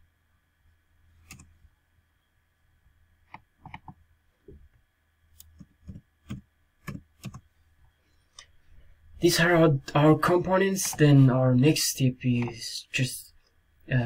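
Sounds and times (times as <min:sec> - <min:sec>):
faint low hum: 0:00.0 - 0:14.0
mouse clicks: 0:01.2 - 0:01.5
keyboard keystrokes: 0:05.4 - 0:07.4.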